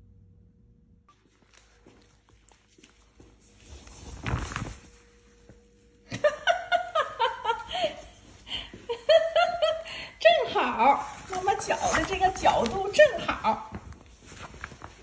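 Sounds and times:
rustling: 0:01.1 - 0:06.0, 0:10.5 - 0:15.0
woman laughing: 0:06.1 - 0:13.7.

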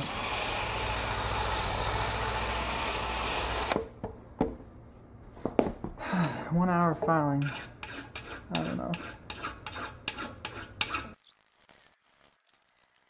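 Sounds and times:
wire brush scraping metal: 0:07.4 - 0:13.0.

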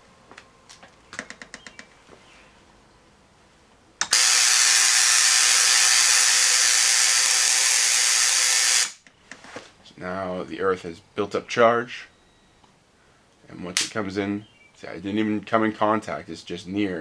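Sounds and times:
tesla coil hissing buzz: 0:04.0 - 0:09.0.

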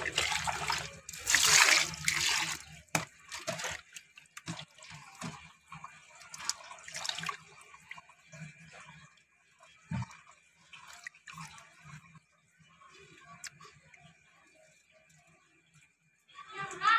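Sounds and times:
water splashing in steel bowl: 0:00.0 - 0:09.0.

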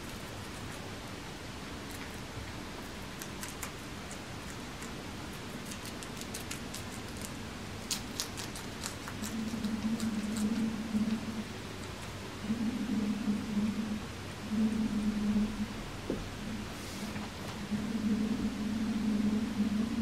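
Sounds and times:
guinea pigs crunching lettuce: 0:00.0 - 0:12.3
low hum: 0:00.0 - 0:20.0.

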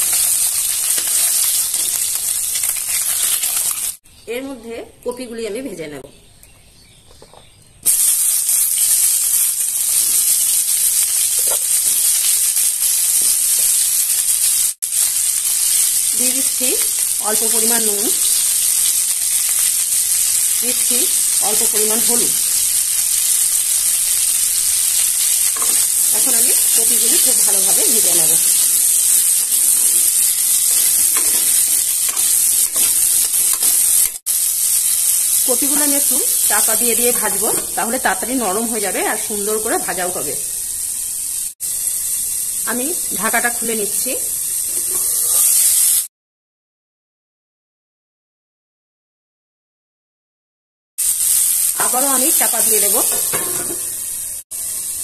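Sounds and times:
vegetables sizzling in hot oil: 0:00.0 - 0:04.0, 0:07.8 - 0:46.1, 0:51.0 - 0:55.0
spatula strokes: 0:25.1 - 0:34.7.

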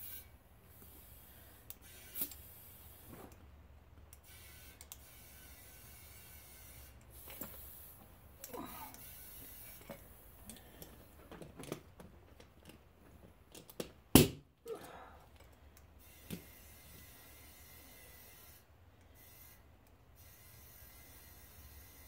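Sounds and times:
light clicks and handling noises: 0:09.7 - 0:14.0, 0:14.7 - 0:16.5.

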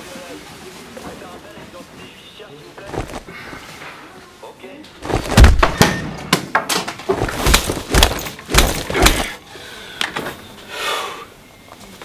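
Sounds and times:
loud bangs and crashes: 0:05.0 - 0:06.3.

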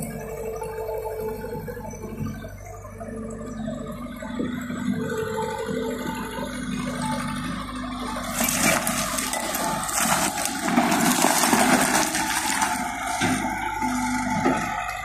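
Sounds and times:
loader engine running: 0:00.0 - 0:15.0
dirt and stones pouring: 0:07.2 - 0:15.0.

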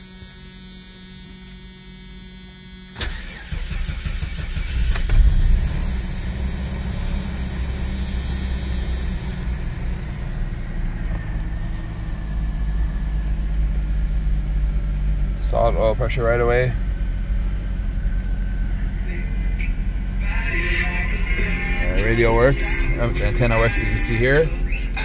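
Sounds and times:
car engine idling: 0:00.0 - 0:25.0
car engine cranking and starting: 0:00.8 - 0:25.0
ignition click: 0:02.9 - 0:09.6.

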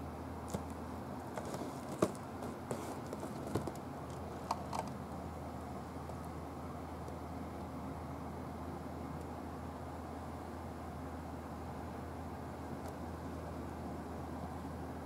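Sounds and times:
steady low hum and hiss: 0:00.0 - 0:15.0
light clicks and taps on box: 0:00.5 - 0:05.0.

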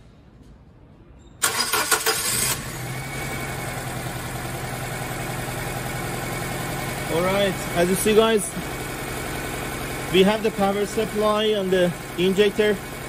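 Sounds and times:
starter cranking car engine: 0:01.4 - 0:03.0
car engine idling: 0:01.4 - 0:13.0.

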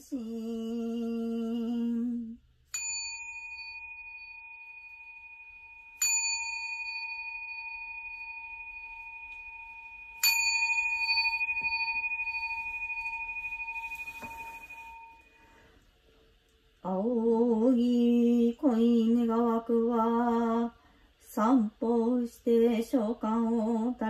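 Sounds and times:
bowl bell ringing: 0:02.7 - 0:15.5.

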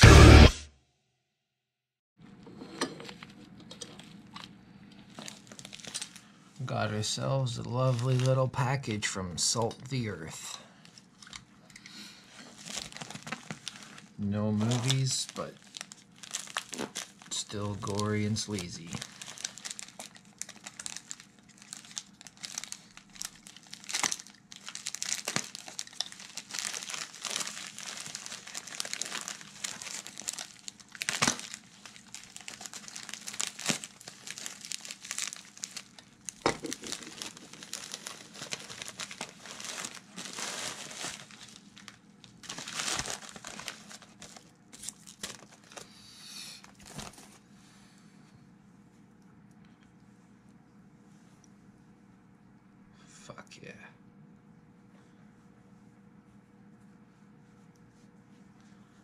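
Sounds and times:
plastic bag crinkling and tearing: 0:05.1 - 0:06.4, 0:07.1 - 0:09.0, 0:12.3 - 0:45.9, 0:46.6 - 0:47.4.

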